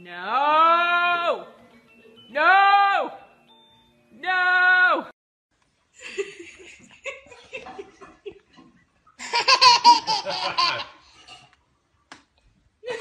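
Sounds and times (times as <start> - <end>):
baby laughing: 9.2 - 11.3.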